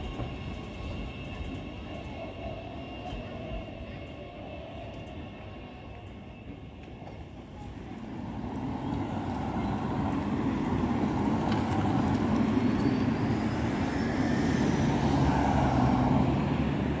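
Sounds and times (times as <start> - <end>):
cars passing: 8.2 - 17.0.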